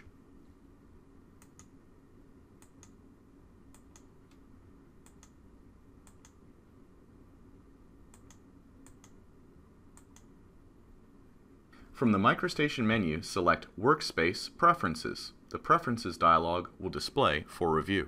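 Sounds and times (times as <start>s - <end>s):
low room hum: 0.0s - 18.0s
computer mouse clicks: 1.4s - 1.8s, 2.6s - 3.0s, 3.7s - 4.4s, 5.0s - 5.4s, 6.0s - 6.4s, 8.1s - 9.2s, 9.9s - 10.3s.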